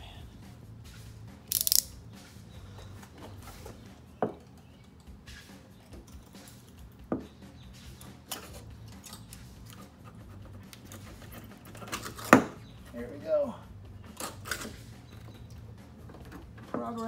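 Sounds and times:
sharp plastic clicks: 1.5 - 1.9.

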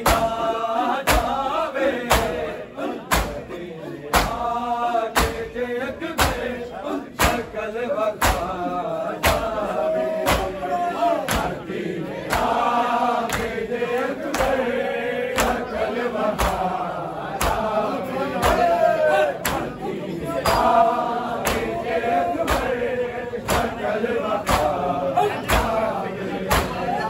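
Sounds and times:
men chanting a lament: 0.0 - 27.0
hands slapping chests: 1.1 - 1.4, 2.0 - 2.5, 3.1 - 3.5, 4.1 - 4.5, 5.2 - 5.4, 6.2 - 6.5, 7.2 - 7.5, 8.2 - 8.6, 9.2 - 9.6, 10.2 - 10.6, 11.2 - 11.6, 12.2 - 14.7, 15.3 - 15.7, 16.3 - 17.7, 18.4 - 18.7, 19.4 - 19.8, 21.4 - 21.8, 22.4 - 22.8, 23.4 - 23.8, 24.4 - 24.8, 26.5 - 26.8.

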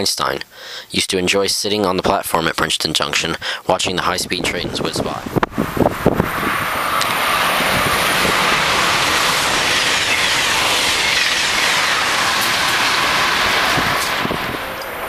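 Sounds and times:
train passing at speed: 4.2 - 15.0.

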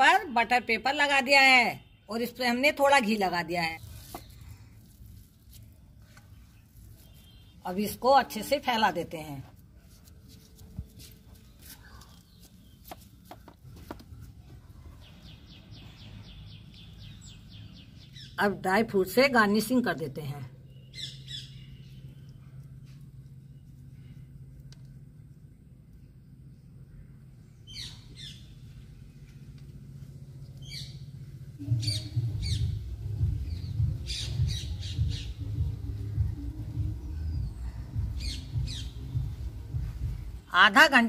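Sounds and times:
low rumble: 31.3 - 40.4
bird chirping rapidly: 31.8 - 40.0.

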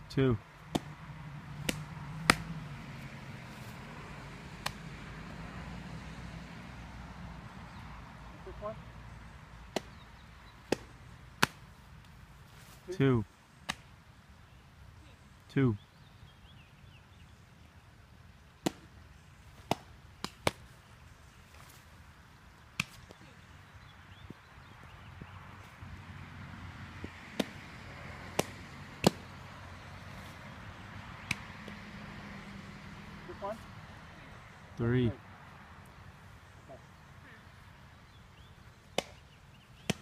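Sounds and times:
ball smacking into mitt: 0.7 - 1.0, 1.6 - 2.6, 4.6 - 4.8, 9.7 - 10.0, 10.6 - 11.6, 18.6 - 18.9, 27.3 - 27.6, 28.3 - 29.2, 38.9 - 39.2, 39.8 - 40.0.

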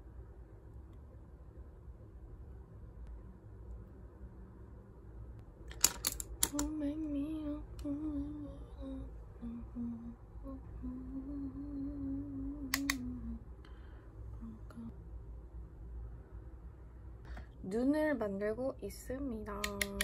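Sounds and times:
sharp clicks: 5.7 - 6.8, 12.7 - 13.1, 19.6 - 20.0
woman humming a tune: 6.5 - 13.5, 14.4 - 15.0.

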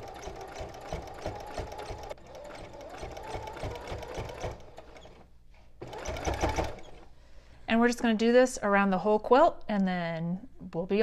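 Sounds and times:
sewing machine stitching: 0.0 - 7.1.

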